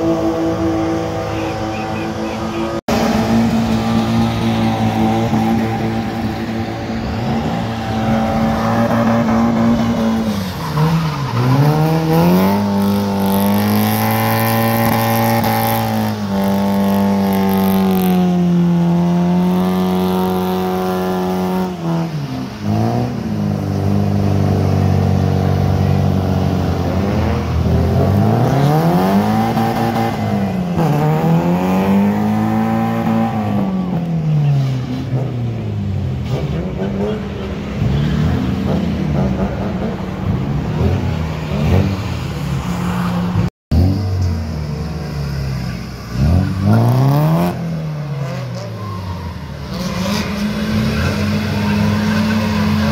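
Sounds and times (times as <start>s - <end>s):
car engine revving hard: 0.0s - 35.4s, 46.1s - 48.8s, 49.6s - 52.9s.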